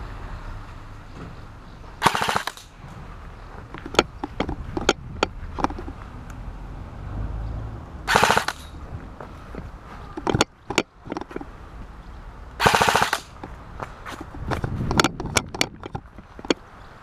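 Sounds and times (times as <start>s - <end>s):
airsoft rifle full-auto bursts: 2.0s - 2.7s, 8.1s - 8.7s, 12.6s - 13.4s.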